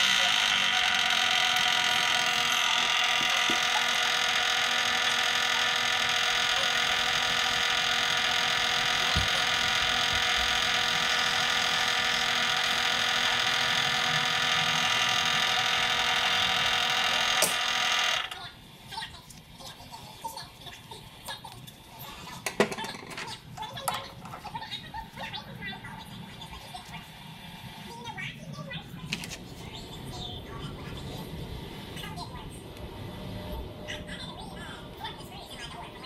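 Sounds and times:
metal lathe whining: 0:00.0 - 0:18.4.

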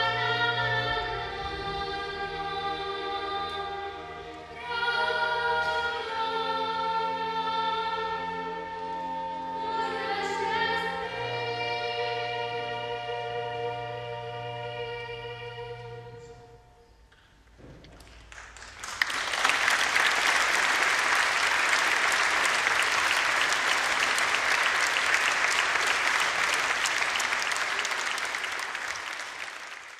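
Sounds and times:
choir and orchestra chord: 0:00.0 - 0:17.1
audience applause: 0:18.0 - 0:29.9.

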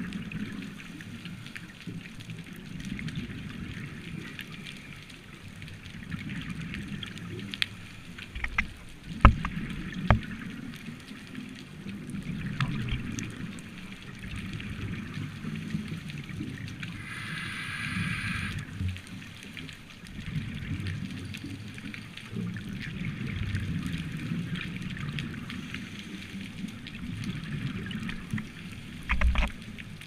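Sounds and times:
gurgling breathing bubbles: 0:16.7 - 0:18.9
hiss: 0:16.9 - 0:18.8.

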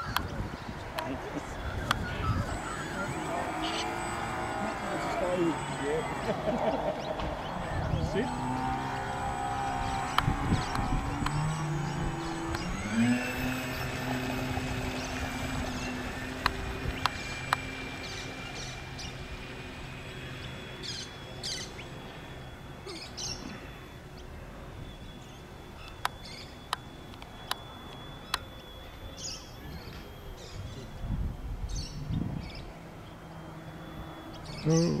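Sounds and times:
birds chirping: 0:00.0 - 0:35.0
model boat motor humming: 0:00.0 - 0:35.0
sharp clicks: 0:08.5 - 0:14.0, 0:16.2 - 0:17.7.

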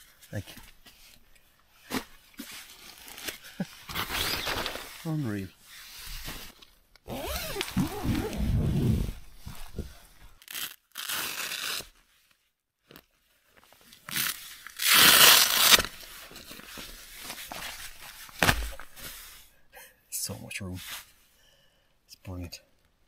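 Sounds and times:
tent fabric rustling and crinkling: 0:00.1 - 0:19.5.

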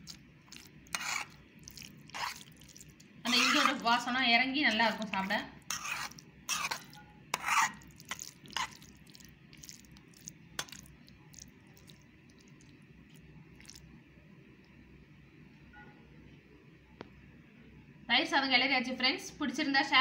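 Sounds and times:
spoon scraping a steel vessel: 0:00.5 - 0:01.4, 0:02.1 - 0:02.5, 0:03.3 - 0:03.9, 0:04.7 - 0:08.9.

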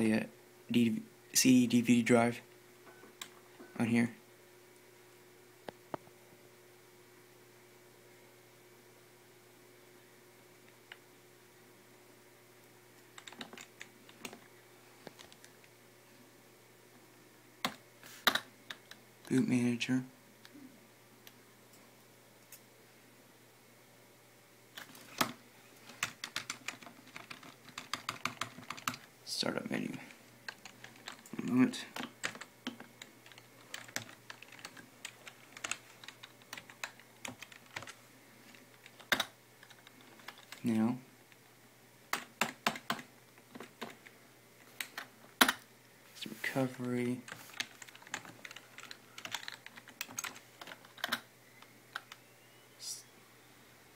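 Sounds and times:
faint steady hiss: 0:00.0 - 0:53.9
keyboard keys clicking: 0:13.2 - 0:14.4, 0:24.8 - 0:29.1, 0:30.5 - 0:31.4, 0:32.0 - 0:38.0, 0:38.8 - 0:40.7, 0:42.1 - 0:44.0, 0:47.3 - 0:51.3.

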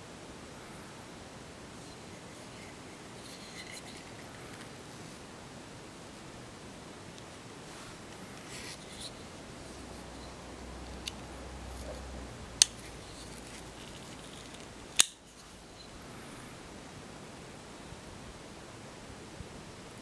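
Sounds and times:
handling rustle: 0:07.6 - 0:12.0, 0:12.6 - 0:16.5
folding knife clicking: 0:15.0 - 0:15.2.

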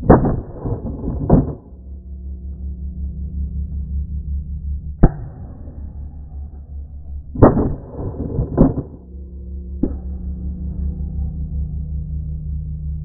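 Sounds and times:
shotgun shots: 0:00.0 - 0:01.8, 0:07.4 - 0:09.1.

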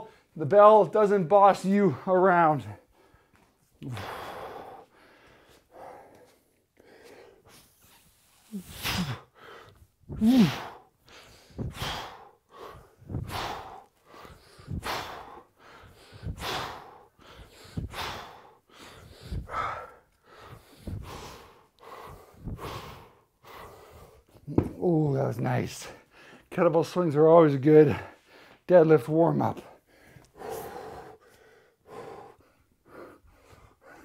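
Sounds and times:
man breathing out forcefully: 0:02.8 - 0:07.7, 0:08.4 - 0:24.8, 0:29.8 - 0:34.0
man grunting: 0:10.2 - 0:10.8.

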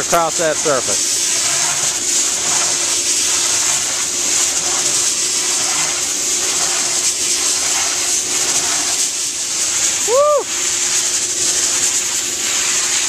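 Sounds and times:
compressed air hissing on a rug: 0:00.0 - 0:13.0.

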